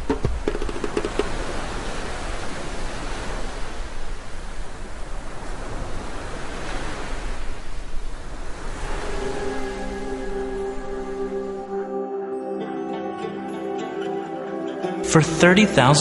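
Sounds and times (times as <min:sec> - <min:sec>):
rough sea surf rushing: 0:00.0 - 0:12.0.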